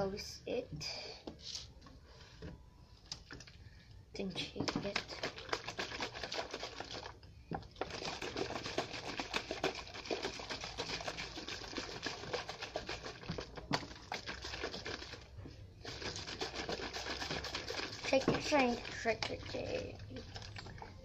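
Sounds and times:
liquid sloshing in shaken bottle: 4.5s - 21.0s.

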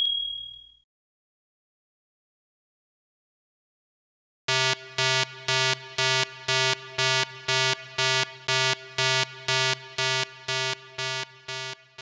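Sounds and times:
electronic timer beeps: 0.0s - 0.8s, 4.5s - 12.0s.

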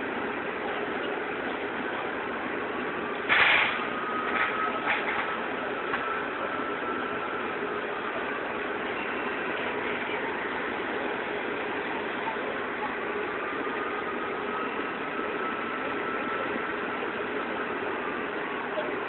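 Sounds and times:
street noise: 0.0s - 19.0s
loud noise bursts: 3.2s - 5.2s.

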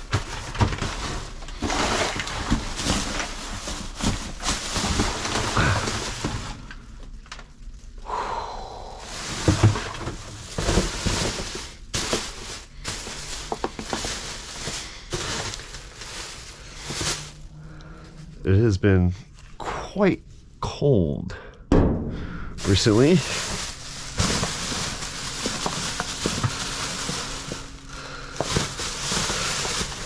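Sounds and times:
rustling: 0.0s - 7.0s, 9.0s - 18.4s, 22.6s - 30.0s
footsteps: 9.1s - 17.5s.

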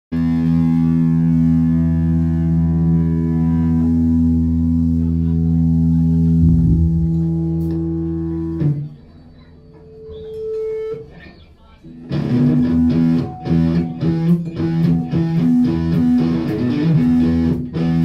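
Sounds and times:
electric guitar chord: 0.2s - 8.8s, 12.0s - 18.0s
faint stage noise: 4.8s - 12.4s.

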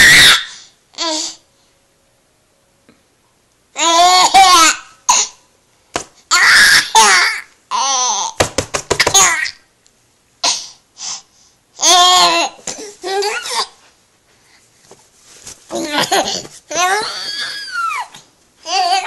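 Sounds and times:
baby laughing: 15.7s - 19.0s.

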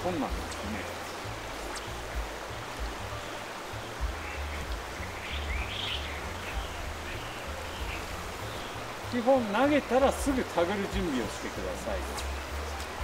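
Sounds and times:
stream water rushing: 0.0s - 13.0s
bird chirping: 3.1s - 9.2s.

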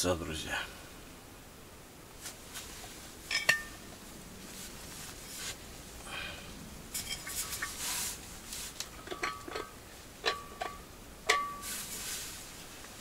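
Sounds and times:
thermos cap twisting and rubbing: 6.9s - 11.4s.

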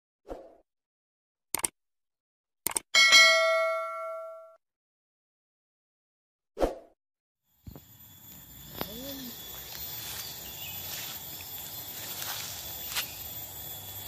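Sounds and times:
insects droning: 7.5s - 14.0s.

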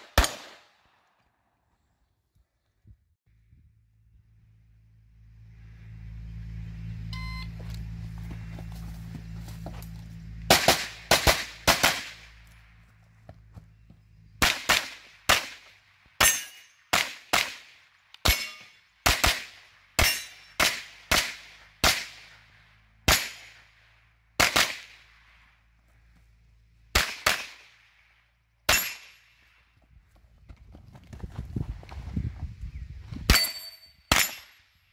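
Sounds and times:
rapid gunshots: 10.5s - 12.3s.

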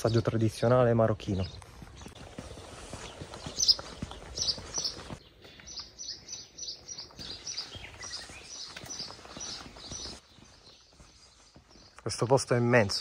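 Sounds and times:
outdoor background rustle: 0.3s - 13.0s
small bird chirping: 1.4s - 12.1s.

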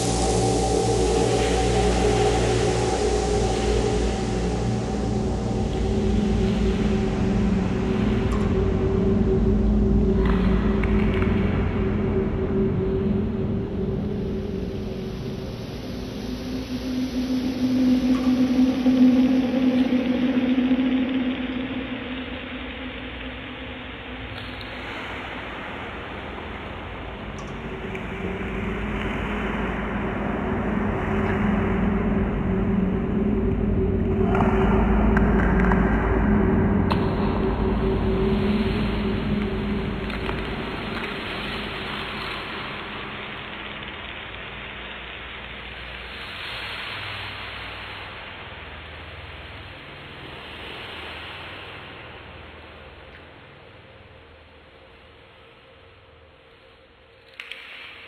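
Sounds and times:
low drone tones: 0.0s - 24.7s, 27.0s - 44.6s
rushing noise wash: 0.0s - 56.0s
dark ambient music: 0.0s - 58.0s.

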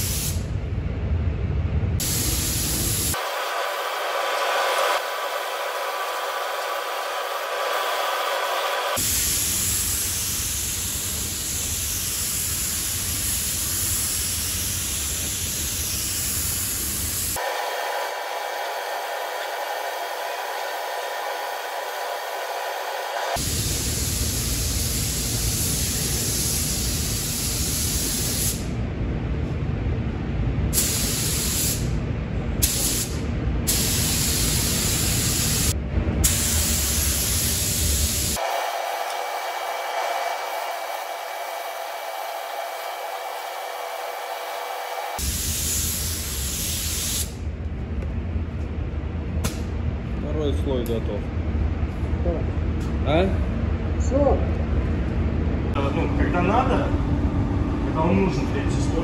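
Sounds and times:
paint spray gun hissing: 0.0s - 0.4s, 2.0s - 28.6s, 30.8s - 31.9s, 32.6s - 35.7s, 36.3s - 47.4s.

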